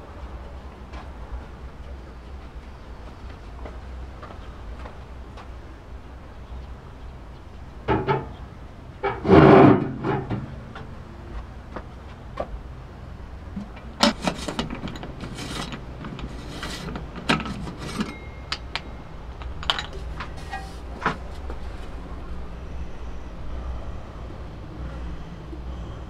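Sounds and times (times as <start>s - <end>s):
metallic can clinks and knocks: 14.0s - 20.3s.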